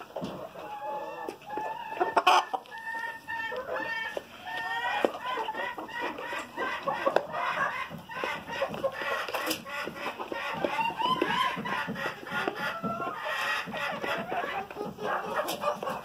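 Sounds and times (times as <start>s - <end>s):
hens clucking: 0.0s - 16.0s
beaks pecking plastic pan: 1.6s - 16.0s.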